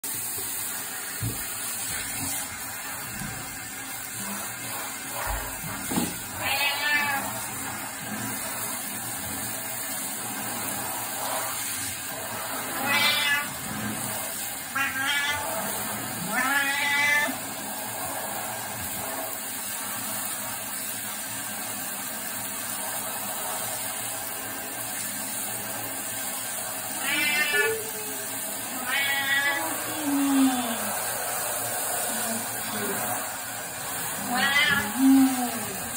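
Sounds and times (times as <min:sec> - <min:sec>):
water spraying from shower head: 0:00.0 - 0:35.9
cat meowing: 0:06.4 - 0:07.3, 0:12.8 - 0:13.5, 0:14.7 - 0:15.5, 0:16.2 - 0:17.4, 0:27.0 - 0:30.5, 0:34.2 - 0:35.8.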